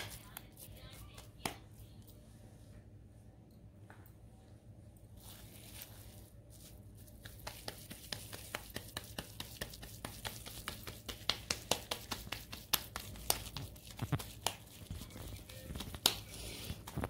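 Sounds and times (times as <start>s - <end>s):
hands patting moist mixture: 0.0s - 1.7s, 5.2s - 17.0s.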